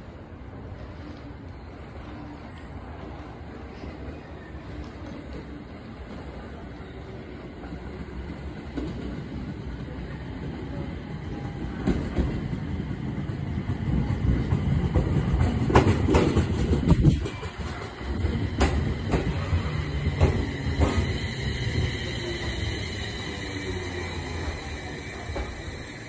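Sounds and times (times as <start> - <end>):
electric train running noise: 15.7 - 26.0.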